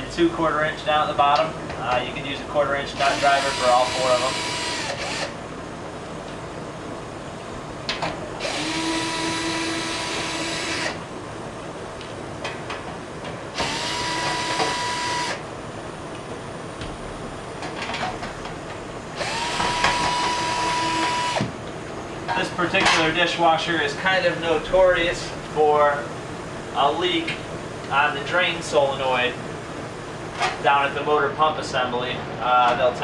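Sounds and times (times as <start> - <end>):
cordless drill whining: 3.1 - 5.4, 8.4 - 11.0, 13.6 - 15.4, 19.2 - 21.5.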